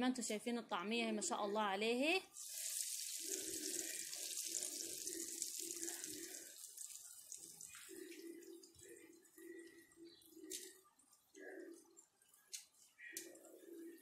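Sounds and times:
patties sizzling in hot oil: 2.3s - 9.0s.

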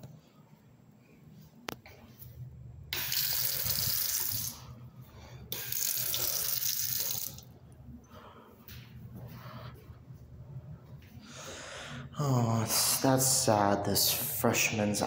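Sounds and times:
faucet water running into sink: 3.0s - 4.6s, 5.5s - 7.4s.

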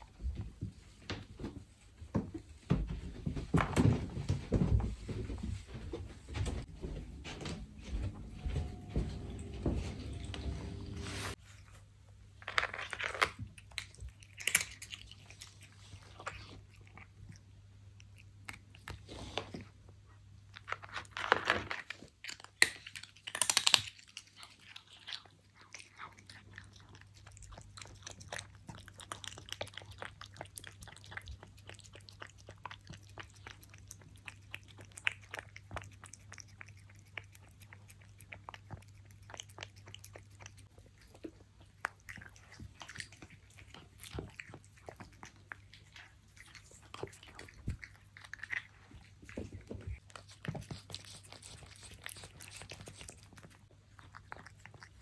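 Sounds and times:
cat chewing wet food: 11.3s - 55.0s
cat crunching dry treats: 12.3s - 19.6s, 20.4s - 55.0s.

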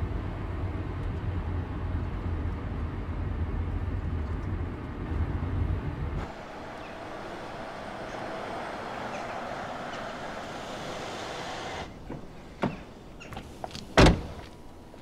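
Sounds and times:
cars driving on asphalt: 0.0s - 15.0s.

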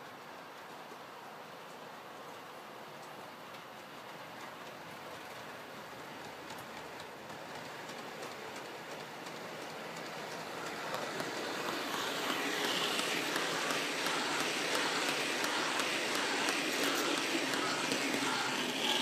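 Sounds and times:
model train wheels rattling on rail: 4.0s - 19.0s.

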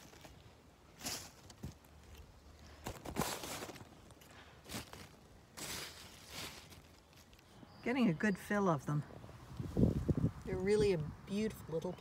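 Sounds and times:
rustling scuffs in plants: 4.6s - 7.3s.

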